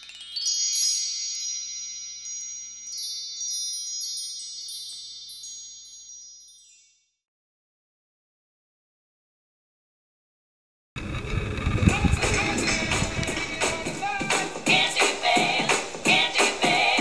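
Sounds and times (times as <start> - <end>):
bell-like chime tones: 0.0 - 7.2.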